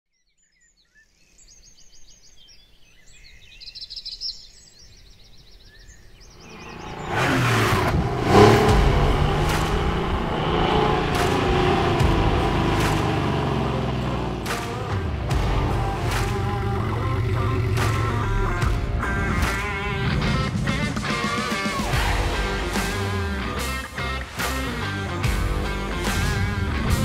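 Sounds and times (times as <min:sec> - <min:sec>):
birds chirping: 0:00.1 - 0:22.4
car engine starting and running: 0:06.4 - 0:27.0.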